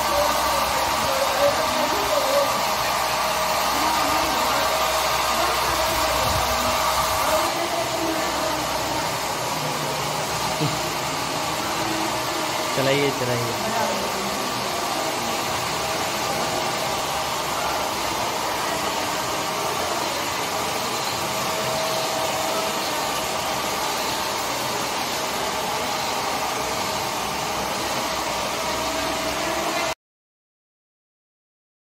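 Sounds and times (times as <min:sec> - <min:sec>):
motor and spindles whirring: 0:00.0 - 0:30.0.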